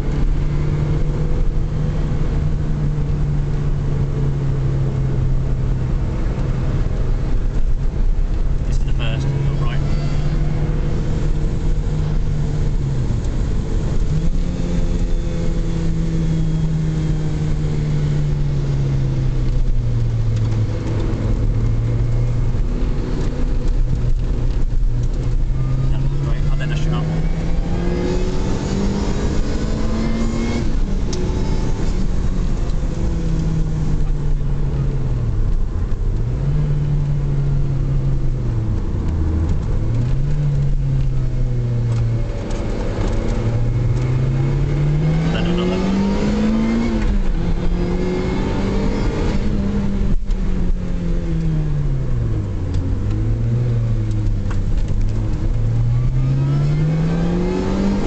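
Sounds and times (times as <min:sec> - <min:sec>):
car engine revving: 0:00.0 - 0:58.0
road noise: 0:00.0 - 0:58.0.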